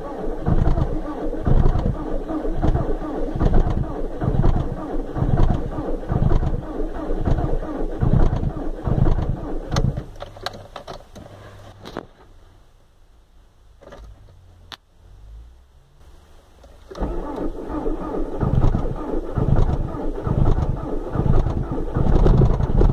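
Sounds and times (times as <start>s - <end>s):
diesel engine cranking: 0.0s - 11.4s, 16.6s - 22.9s
faint steady hum: 0.0s - 22.9s.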